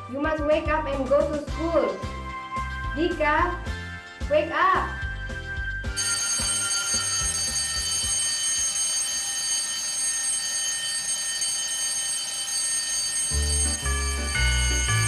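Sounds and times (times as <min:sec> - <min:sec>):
alarm clock ringing: 0:05.2 - 0:15.0.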